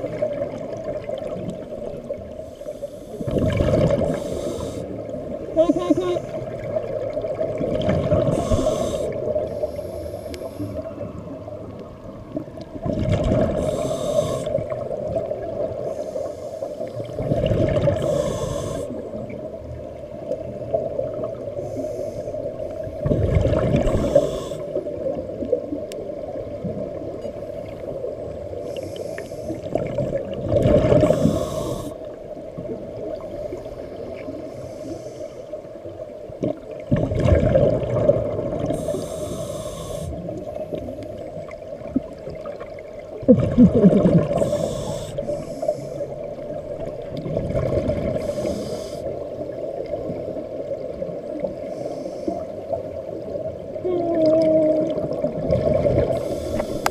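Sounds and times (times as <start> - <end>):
exhaled bubbles rushing underwater: 0.0 - 28.8, 29.4 - 34.6, 35.9 - 51.7, 52.6 - 56.9
hissing inhalations: 4.1 - 5.0, 8.3 - 10.9, 13.6 - 14.6, 18.0 - 19.0, 21.6 - 22.4, 24.0 - 24.8, 28.6 - 29.7, 31.0 - 32.0, 38.7 - 40.4, 44.3 - 46.2, 48.2 - 49.2, 51.6 - 52.6, 56.2 - 56.9.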